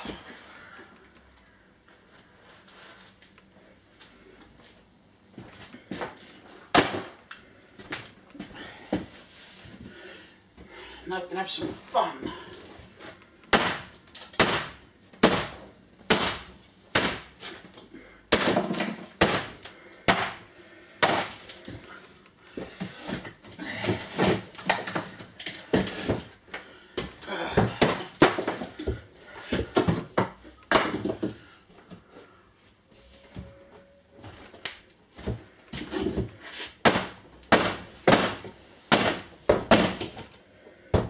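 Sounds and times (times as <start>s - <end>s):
wooden cupboard bashed apart: 6.7s - 7.2s, 13.5s - 17.4s, 18.3s - 20.4s, 27.1s - 28.8s, 36.8s - 40.2s.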